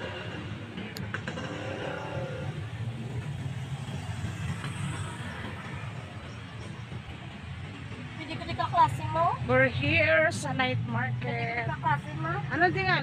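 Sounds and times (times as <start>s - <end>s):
motorbike and road traffic rumble: 0.0s - 13.0s.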